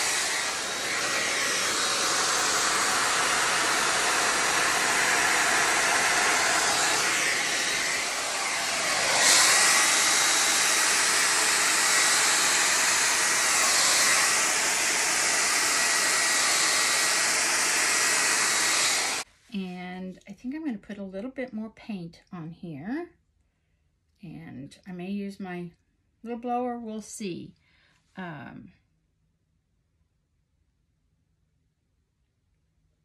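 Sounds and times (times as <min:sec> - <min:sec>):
hair dryer blowing air: 0:00.0 - 0:19.3.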